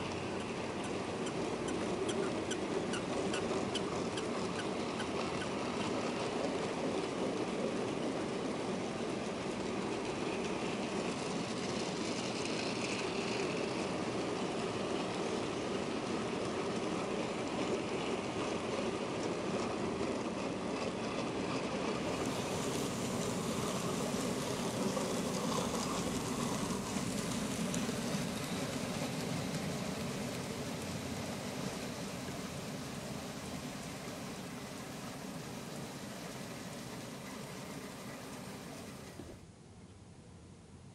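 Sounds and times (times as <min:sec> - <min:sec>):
train wheels rumbling on rails: 0:00.0 - 0:39.4.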